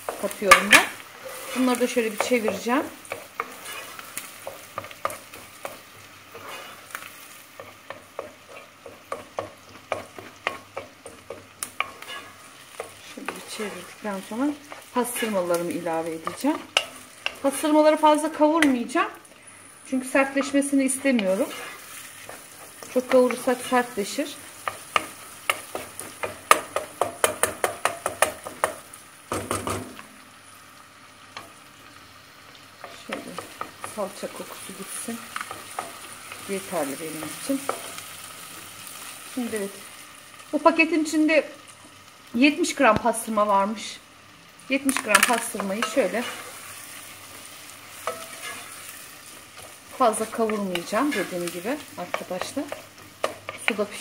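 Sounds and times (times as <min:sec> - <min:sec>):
wooden spoon scraping a pot: 0:00.0 - 0:17.6, 0:20.2 - 0:23.8, 0:45.1 - 0:46.8, 0:48.0 - 0:48.9
light sizzle of frying: 0:00.0 - 0:54.0
wooden spoon knocking a pot: 0:25.0 - 0:30.0.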